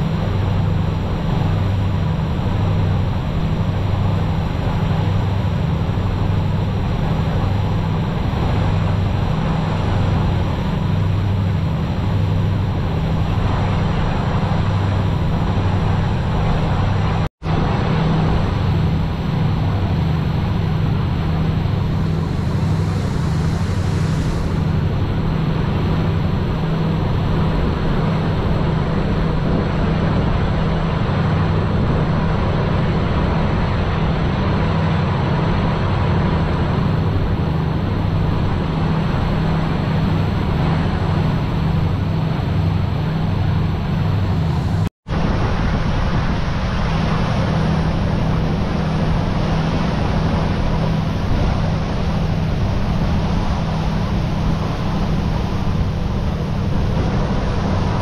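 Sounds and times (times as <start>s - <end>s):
boat engine droning: 0.0s - 58.0s
water rushing in wake: 0.0s - 58.0s.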